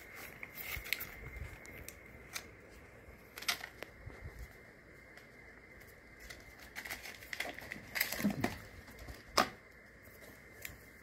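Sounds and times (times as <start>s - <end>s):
packaging rustling: 5.8s - 10.8s.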